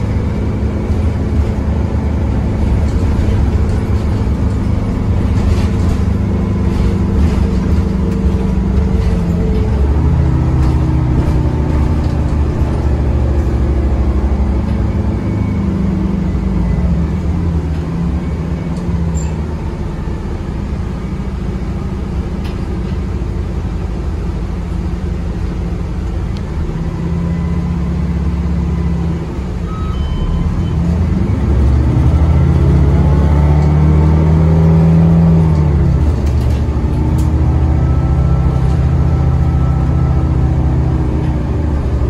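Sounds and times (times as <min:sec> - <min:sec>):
bus engine: 0:00.0 - 0:42.0.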